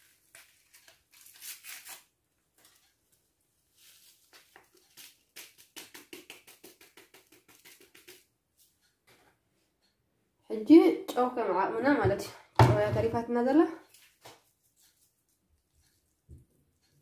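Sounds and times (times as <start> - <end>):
bottle handling knocks and rustles: 12.0 - 13.2.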